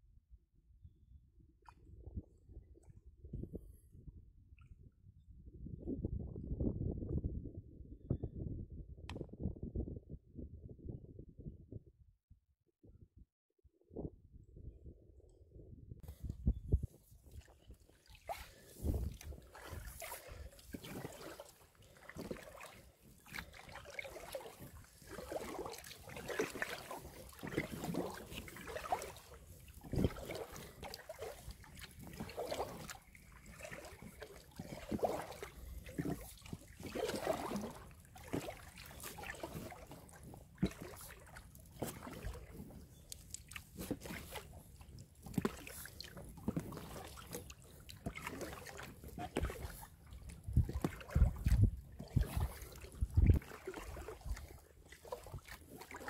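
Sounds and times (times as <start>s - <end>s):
paddle dipping into water: 16.1s - 56.0s.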